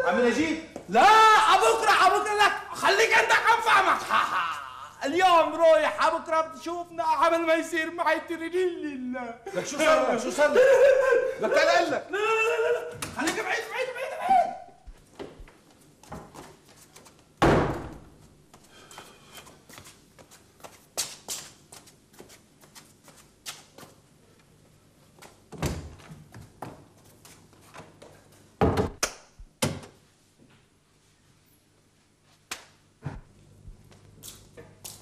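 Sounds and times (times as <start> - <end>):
door banging: 17.4 - 18.0.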